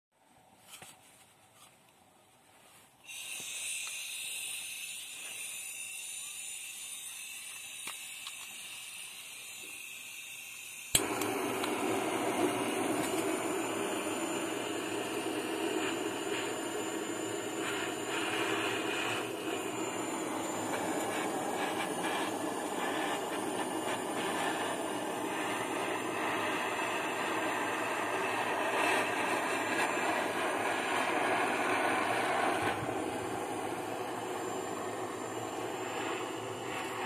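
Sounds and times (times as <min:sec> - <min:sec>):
gas hiss: 0:03.0 - 0:37.0
rush of burning gas: 0:03.1 - 0:37.0
torch igniter click: 0:07.4 - 0:09.2, 0:10.9 - 0:32.9.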